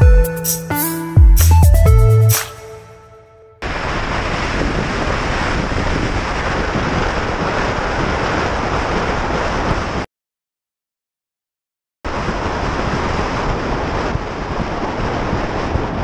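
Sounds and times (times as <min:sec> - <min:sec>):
wind rushing over microphone: 0:03.6 - 0:10.1, 0:12.1 - 0:16.0.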